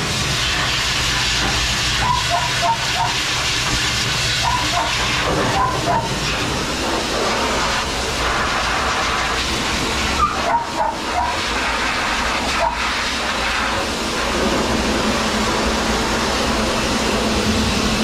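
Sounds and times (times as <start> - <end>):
dryer blowing air: 0.0 - 18.0
dog whimpering: 2.0 - 3.2, 4.4 - 6.2.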